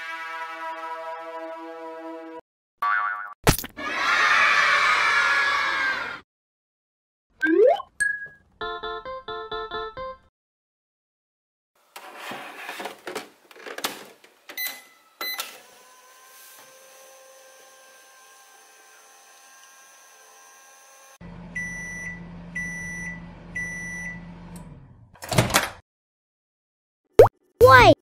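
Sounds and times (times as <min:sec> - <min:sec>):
toy microwave running hum: 0:14.6 - 0:25.1.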